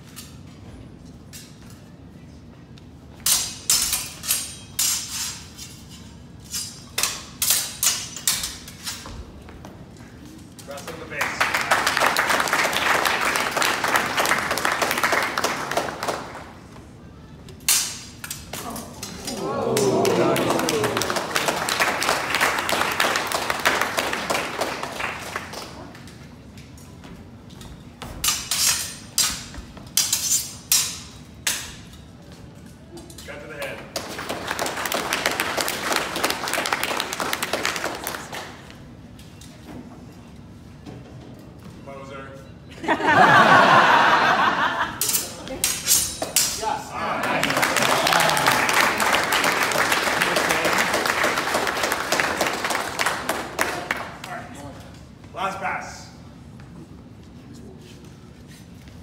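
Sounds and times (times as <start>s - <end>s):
swords clashing: 3.2s - 9.1s, 17.6s - 19.9s, 28.2s - 32.0s, 45.0s - 46.9s
audience clapping: 11.1s - 16.6s, 19.4s - 26.0s, 34.0s - 38.8s, 47.0s - 54.4s.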